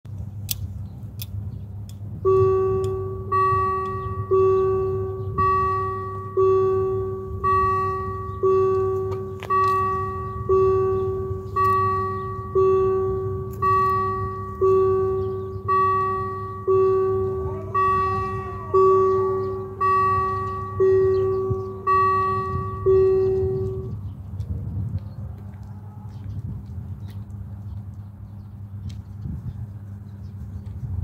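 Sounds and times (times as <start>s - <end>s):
level crossing warning bell: 2.1s - 24.3s.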